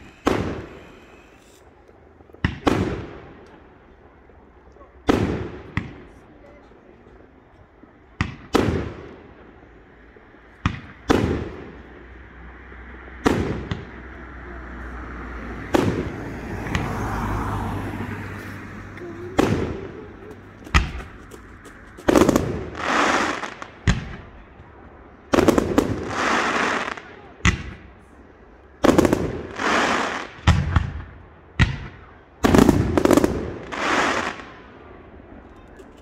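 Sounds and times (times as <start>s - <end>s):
firework crackling hiss: 0.0s - 2.8s, 15.7s - 23.8s, 25.6s - 27.0s, 29.1s - 30.4s, 33.0s - 34.5s
firework shells bursting: 0.0s - 3.6s.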